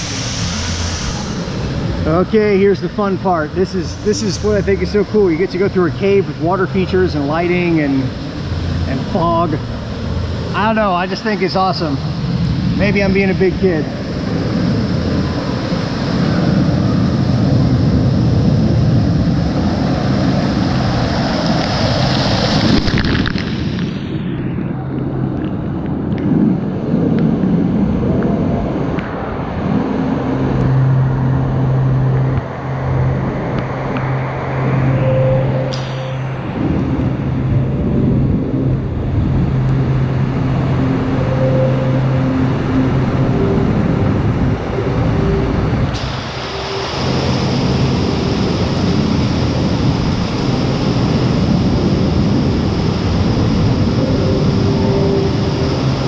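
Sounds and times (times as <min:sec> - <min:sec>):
low steady hum: 0:00.0 - 0:23.4, 0:24.0 - 0:56.0
water falling and splashing: 0:20.7 - 0:24.0.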